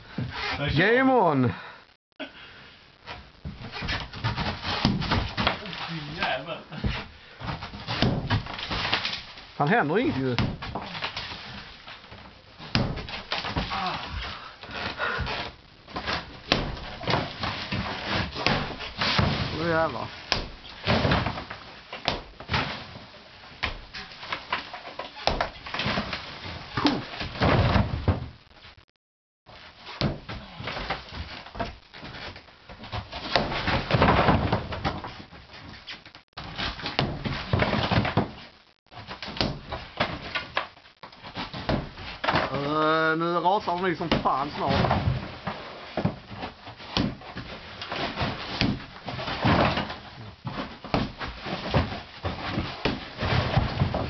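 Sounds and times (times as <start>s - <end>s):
plaster crumbling: 3.4s - 28.4s, 29.6s - 42.9s, 43.8s - 54.0s
sledgehammer striking wall: 6.9s - 9.0s, 12.6s - 14.1s, 39.2s - 40.3s
sledgehammer striking brick wall: 6.9s - 9.2s.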